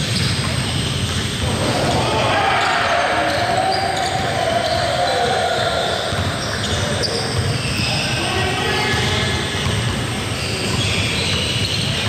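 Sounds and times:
basketball bouncing: 0.0 - 2.0, 8.9 - 12.0
shoe squeaks: 0.0 - 12.0
din of voices: 1.4 - 6.0.

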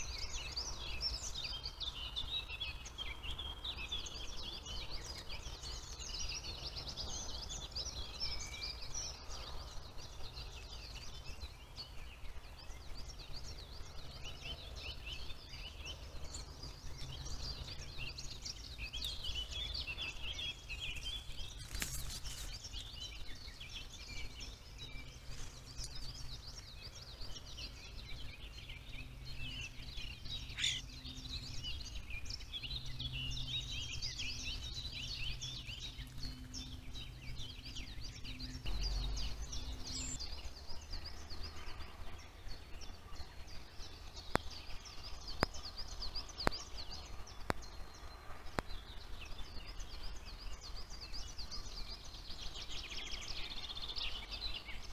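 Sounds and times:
birds singing and chirping: 0.0 - 54.9.

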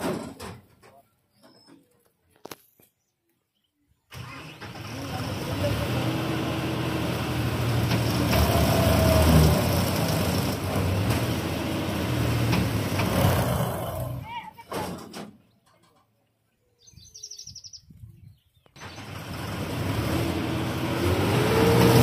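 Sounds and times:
combine harvester diesel engine straining: 4.1 - 15.3, 18.8 - 22.0.

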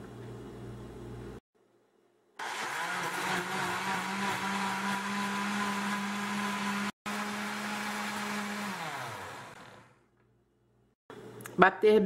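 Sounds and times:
blender motor running: 2.4 - 10.0.

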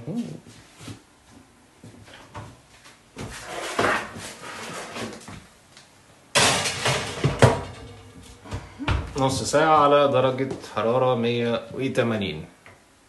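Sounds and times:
baking tray clattering: 6.4 - 8.6.

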